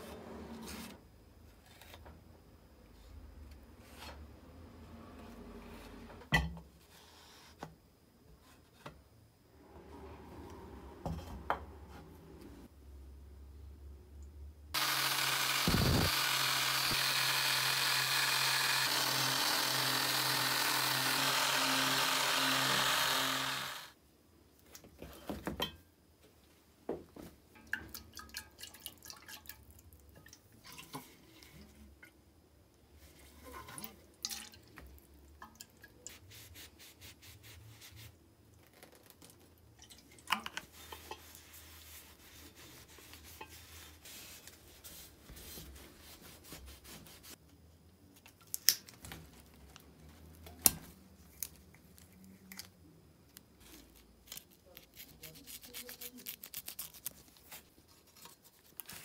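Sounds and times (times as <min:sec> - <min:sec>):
electric sander running: 0:14.8 - 0:23.9
cloth rubbing on metal: 0:40.7 - 0:47.4.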